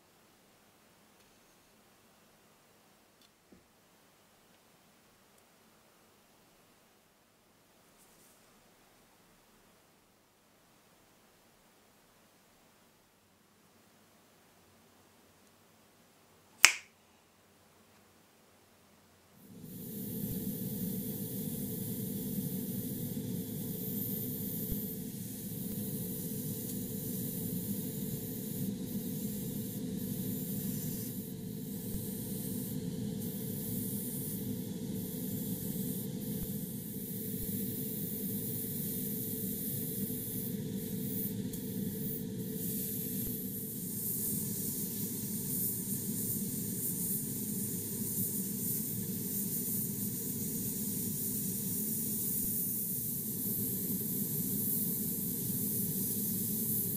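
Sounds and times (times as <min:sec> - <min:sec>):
airbrush hissing: 0:19.4 - 0:56.9.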